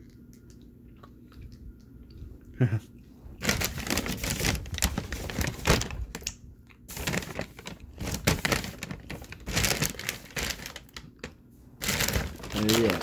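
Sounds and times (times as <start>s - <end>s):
food packaging crinkling: 3.4s - 13.0s.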